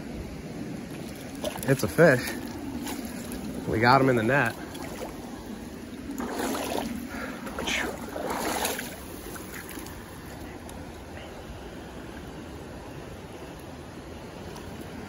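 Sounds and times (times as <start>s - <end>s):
river current rushing: 0.0s - 15.0s
water splashing: 0.8s - 10.8s.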